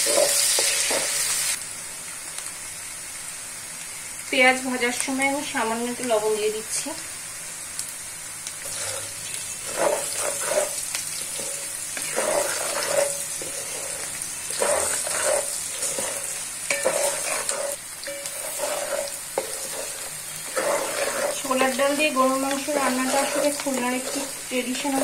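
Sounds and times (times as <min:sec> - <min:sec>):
wooden spatula scraping pot: 0:00.0 - 0:01.2, 0:08.7 - 0:25.0
onions sizzling in oil: 0:00.0 - 0:25.0.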